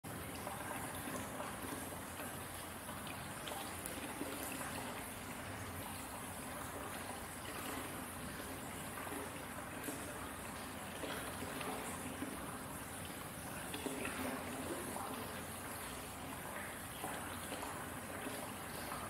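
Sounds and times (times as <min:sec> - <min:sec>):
water trickling into bathtub: 0:00.0 - 0:19.0.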